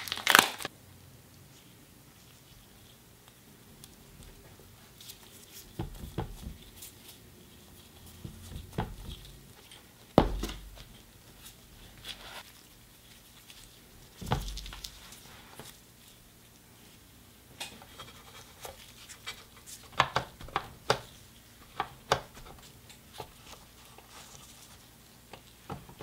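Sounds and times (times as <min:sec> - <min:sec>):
soft taps and handling noises: 0:17.6 - 0:26.0.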